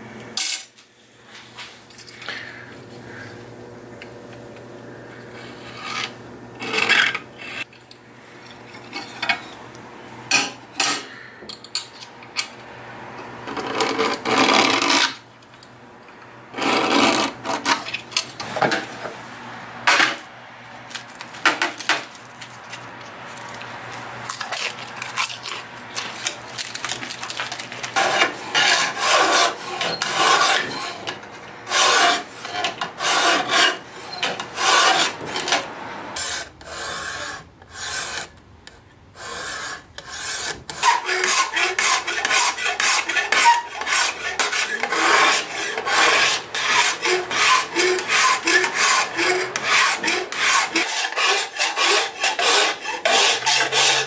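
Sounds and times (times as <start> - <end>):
file scraping steel blade: 5.4 - 7.7, 13.5 - 15.2, 16.5 - 18.3, 24.3 - 38.4, 39.2 - 54.0.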